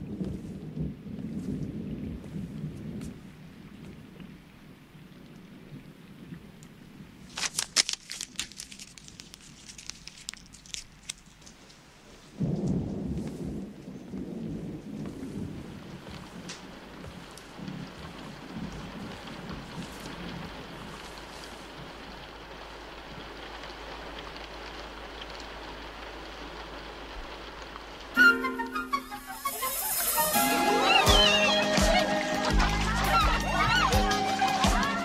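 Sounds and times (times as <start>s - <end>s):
rolling thunder: 0.0s - 4.1s, 12.4s - 21.1s
rain: 0.0s - 35.0s
sharp crackling clicks: 7.3s - 11.8s.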